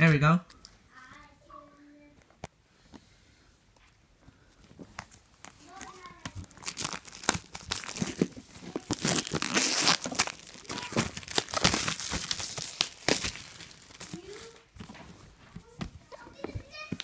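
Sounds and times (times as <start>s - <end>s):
plastic shrink wrap crinkling: 4.6s - 17.0s.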